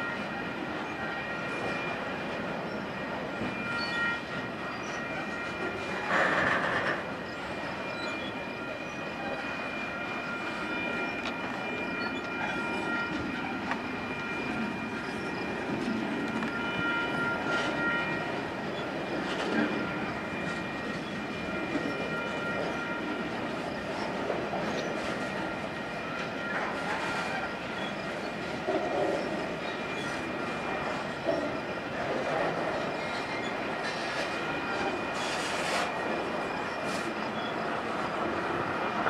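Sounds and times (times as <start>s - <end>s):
freight train rumbling on rails: 0.0s - 39.0s
train clatter: 3.3s - 7.3s, 11.2s - 25.4s, 26.2s - 39.0s.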